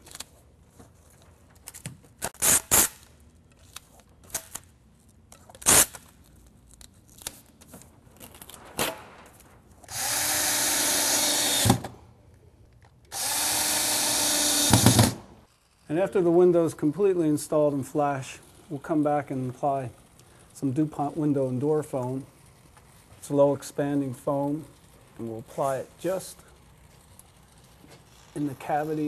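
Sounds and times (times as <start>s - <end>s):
power drill running: 9.9s - 11.9s, 13.1s - 15.2s.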